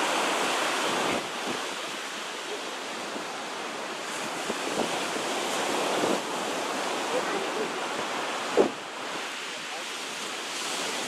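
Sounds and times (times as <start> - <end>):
waves breaking on a beach: 0.0 - 11.0.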